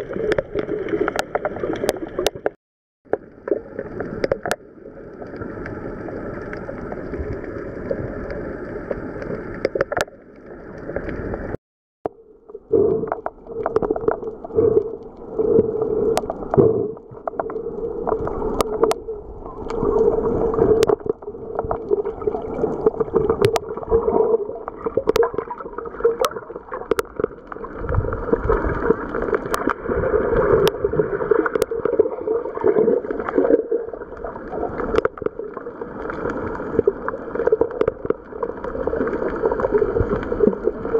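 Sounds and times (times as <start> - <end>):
water sloshing and gurgling: 0.0 - 40.9.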